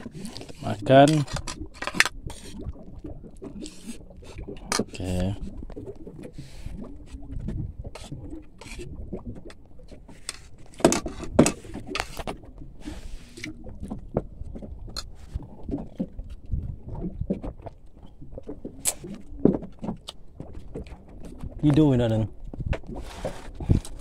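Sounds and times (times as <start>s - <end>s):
low rumble: 6.7s - 9.8s.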